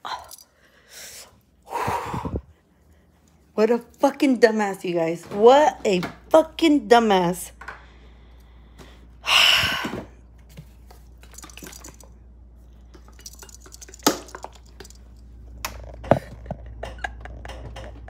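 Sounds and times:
bottles and jars clinking: 10.9s - 12.2s, 12.9s - 15.2s.

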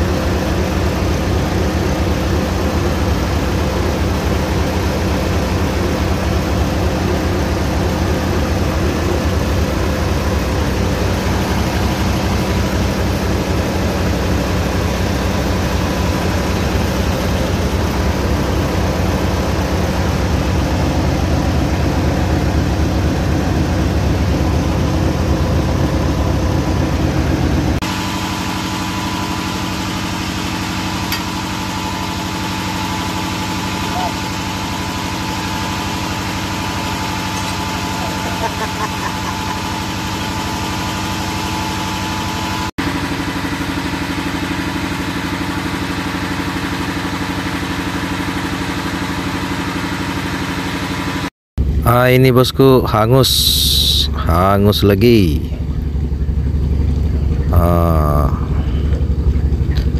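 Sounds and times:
diesel engine running: 0.0s - 59.9s
machine hum with thin whine: 53.3s - 59.9s.

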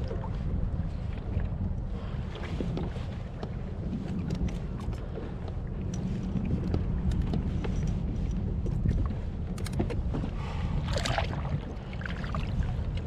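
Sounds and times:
low steady rumble: 0.0s - 13.0s
water lapping against kayak hull: 0.0s - 13.0s
small clicks and taps of gear: 2.7s - 10.3s.

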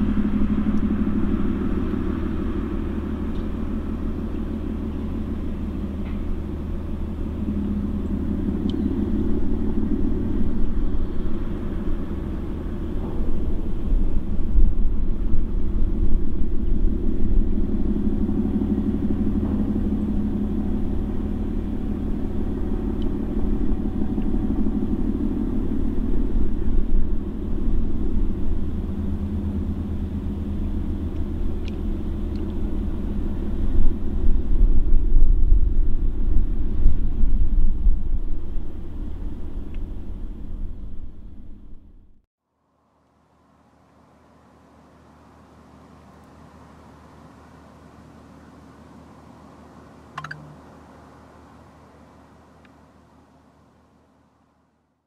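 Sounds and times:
ship diesel machinery rumbling: 0.0s - 35.0s.

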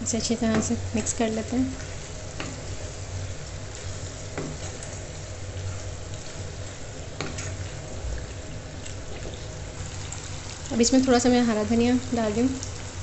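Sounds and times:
chicken sizzling in a pan: 0.0s - 13.0s.

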